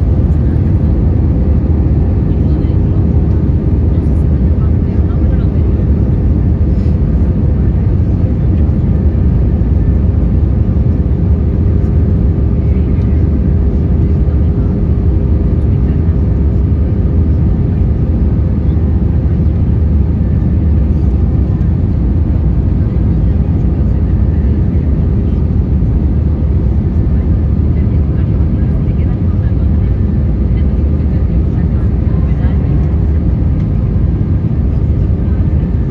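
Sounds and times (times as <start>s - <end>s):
aircraft cabin engine rumble: 0.0s - 35.9s.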